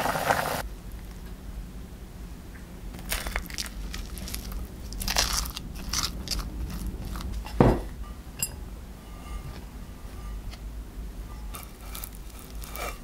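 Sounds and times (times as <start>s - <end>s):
dull thump: 7.6s - 7.9s
short ringing clink: 8.0s - 9.5s
plastic paddle scraping crunchy rice: 11.5s - 13.0s.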